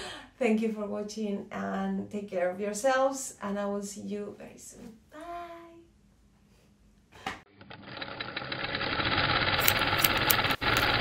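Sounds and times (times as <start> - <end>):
sewing machine running: 7.5 - 11.0.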